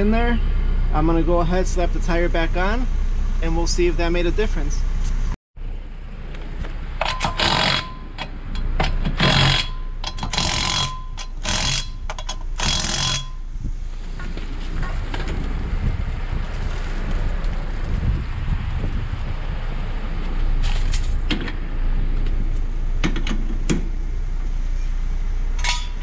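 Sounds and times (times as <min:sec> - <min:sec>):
cordless impact tool bursts: 0:07.1 - 0:07.9, 0:09.2 - 0:12.0.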